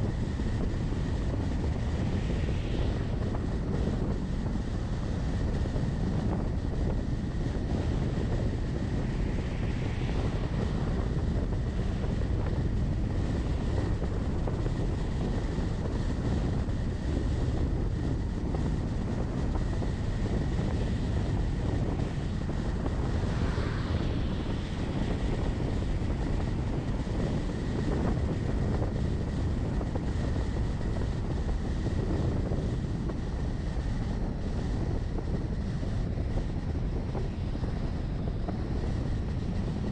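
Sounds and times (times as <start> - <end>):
faint high whine: 0.0 - 39.9
vehicle engine and tyre noise: 0.0 - 39.9
wind noise: 0.0 - 39.9.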